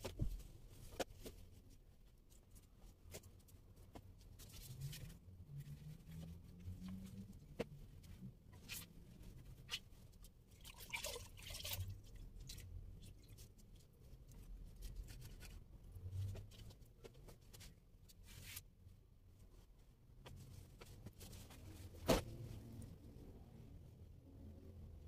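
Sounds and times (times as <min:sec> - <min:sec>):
clothes rustling: 0:13.7 - 0:23.0.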